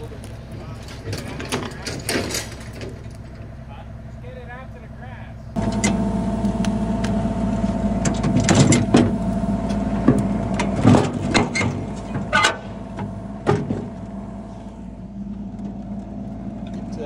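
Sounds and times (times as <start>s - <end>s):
engine running: 0.0s - 17.0s
knocks and clanks: 0.7s - 3.4s, 8.0s - 14.1s.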